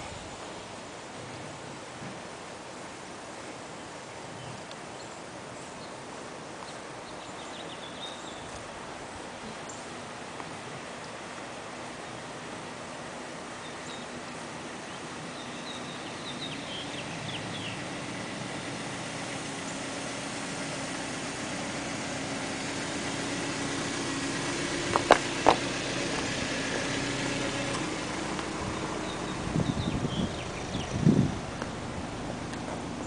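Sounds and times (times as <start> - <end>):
vehicle engine running: 10.7 - 33.0
bird chirps: 14.9 - 17.8.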